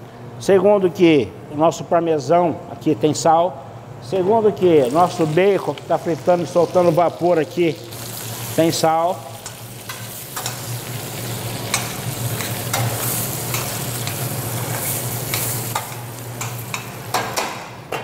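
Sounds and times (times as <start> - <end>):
bacon sizzling in a pan: 4.8 - 17.1.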